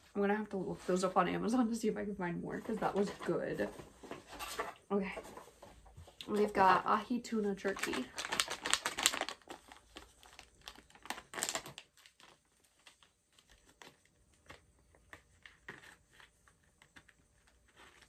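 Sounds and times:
plastic pouch crinkling: 7.6 - 18.0.

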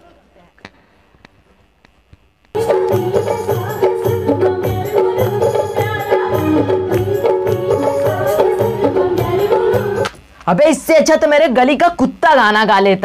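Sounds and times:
folk music: 2.6 - 10.2
steady drum beat: 2.6 - 10.2
woman singing into microphone: 2.6 - 10.2.

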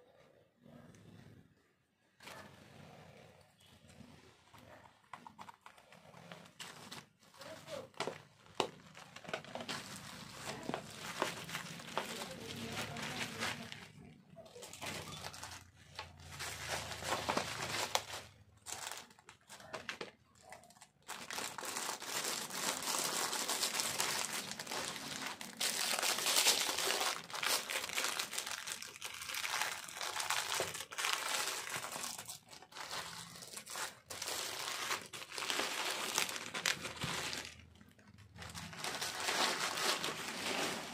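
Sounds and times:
plastic wrap crinkling: 4.0 - 40.9.

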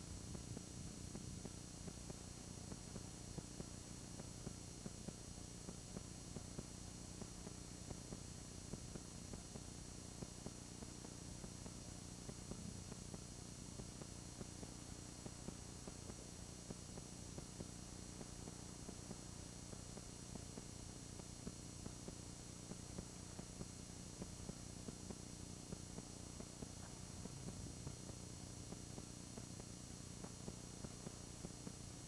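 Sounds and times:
faint electrical hum: 0.0 - 32.0
tape hiss: 0.0 - 32.0.

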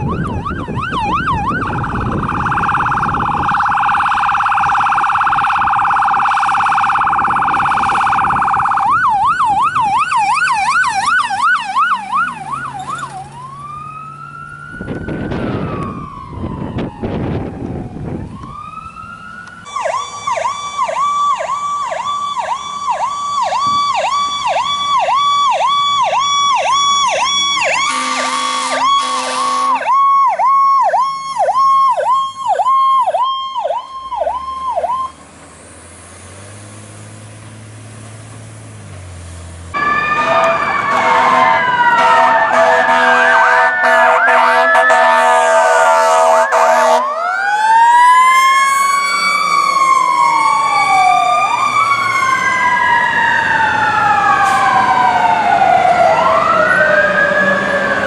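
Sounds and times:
electronic siren: 0.0 - 35.2, 39.7 - 58.0
air horn blast: 27.8 - 29.8, 39.8 - 47.1.

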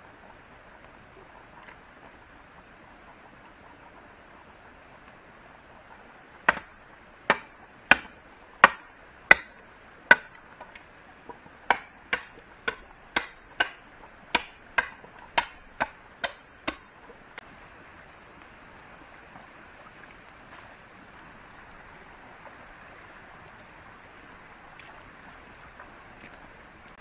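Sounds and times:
sharp chopping strikes: 6.5 - 6.7, 7.3 - 10.4, 11.7 - 16.9.

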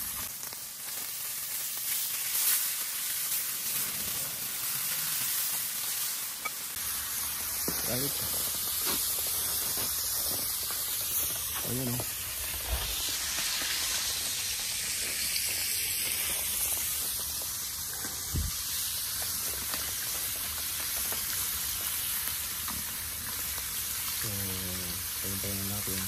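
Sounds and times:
fish sizzling in hot oil: 0.0 - 26.0.

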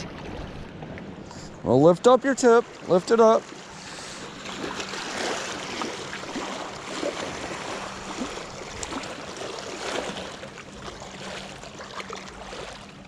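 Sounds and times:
small waves lapping on rocks: 2.4 - 13.0
short splashes and knocks: 2.6 - 13.0.

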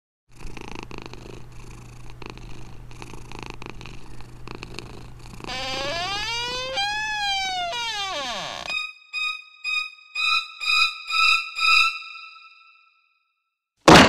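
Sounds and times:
kitten purring: 0.3 - 7.2.

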